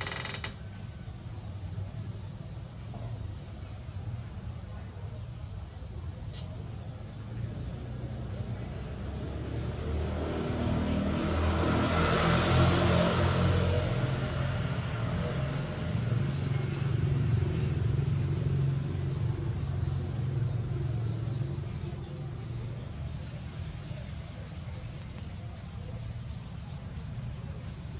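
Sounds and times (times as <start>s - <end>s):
crickets chirping: 0.0s - 27.9s
vehicle engine rumbling past: 6.5s - 27.9s.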